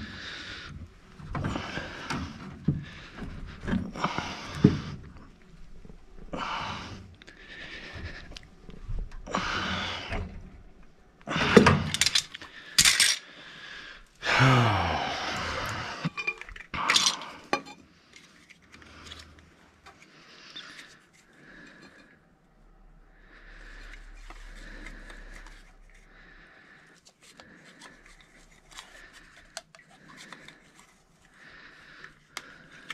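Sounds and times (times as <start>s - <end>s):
metal tools clattering on floor: 11.6s - 13.2s, 16.1s - 17.8s.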